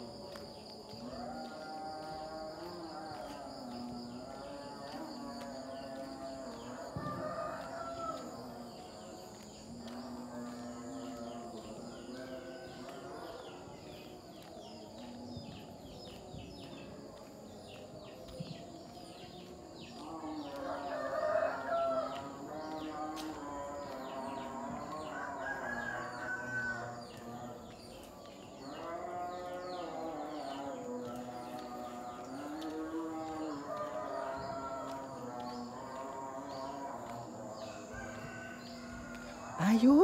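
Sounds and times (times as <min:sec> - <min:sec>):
roosters crowing: 0:05.8 - 0:09.3, 0:20.0 - 0:27.4, 0:28.6 - 0:40.0.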